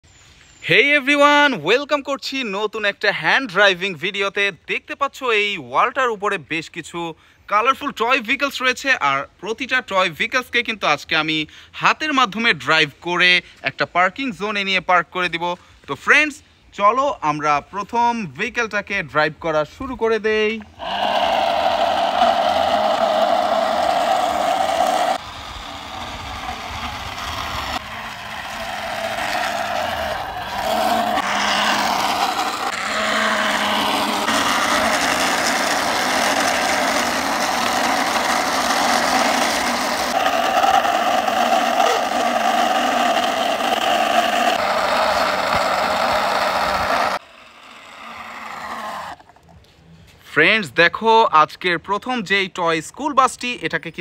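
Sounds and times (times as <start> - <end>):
vehicle engine revving: 20.8 - 47.2.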